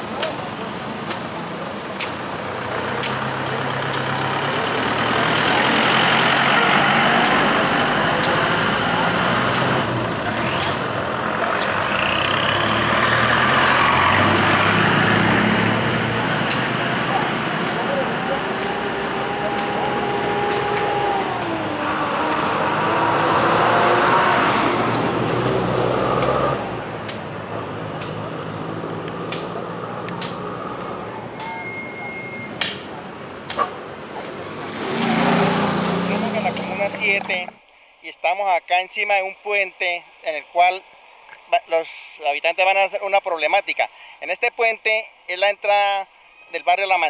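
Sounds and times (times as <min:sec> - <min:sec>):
bus engine driving past: 0:00.0 - 0:37.6
road noise: 0:00.0 - 0:47.0.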